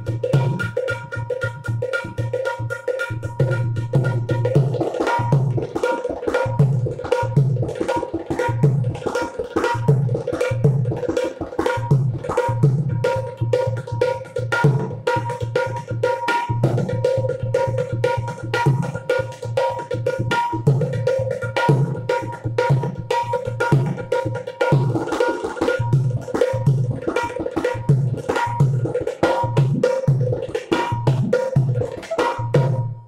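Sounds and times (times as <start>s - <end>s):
hand drum played fast: 0.0s - 33.0s.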